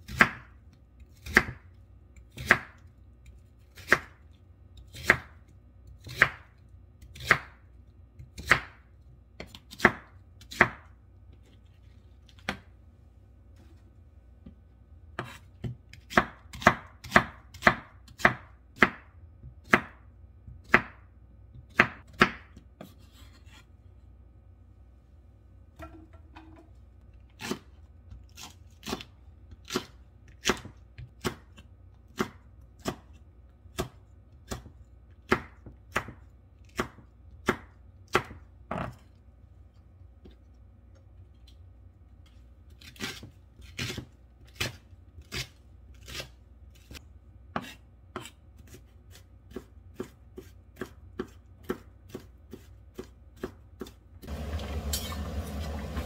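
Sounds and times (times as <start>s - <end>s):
knife chopping on wooden board: 0.0s - 0.6s, 1.2s - 1.7s, 2.3s - 2.8s, 4.9s - 5.4s, 6.0s - 6.4s, 7.1s - 7.6s, 8.2s - 8.8s, 9.4s - 10.9s, 15.2s - 21.0s, 21.6s - 23.4s, 28.3s - 39.0s, 46.1s - 56.0s
water boiling hard in a pan: 54.3s - 56.0s.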